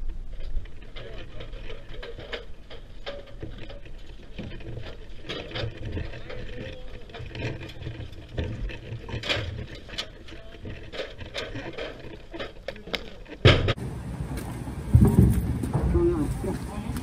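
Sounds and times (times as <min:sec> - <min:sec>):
metal ladder clicking and rattling: 0:00.4 - 0:13.8.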